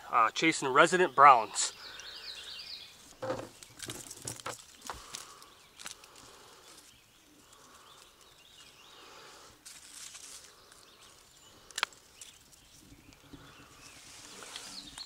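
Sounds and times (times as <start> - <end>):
soft rustling of net: 3.0 - 15.0.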